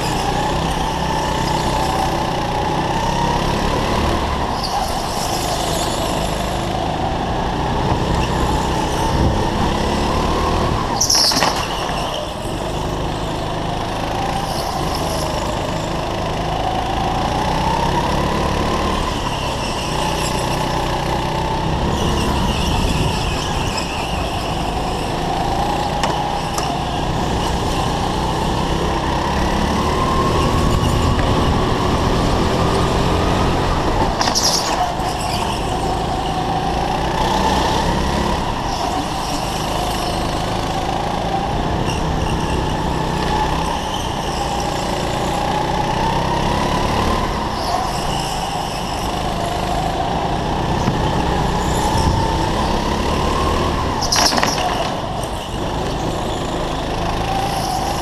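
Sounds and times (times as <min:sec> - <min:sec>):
go-kart engine running hard: 0:00.0 - 0:58.0.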